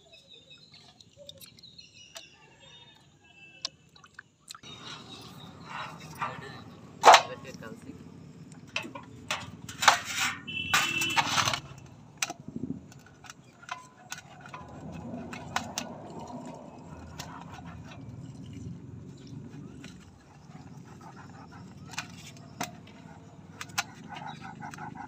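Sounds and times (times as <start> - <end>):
knife clattering in steel basin: 5.0 - 7.8, 8.7 - 20.9.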